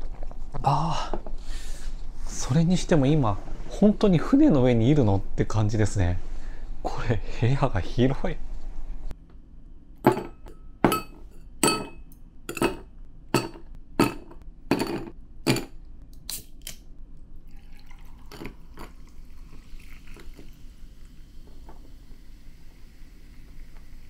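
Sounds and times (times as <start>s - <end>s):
drink poured with fizzing hiss: 17.4s - 24.0s.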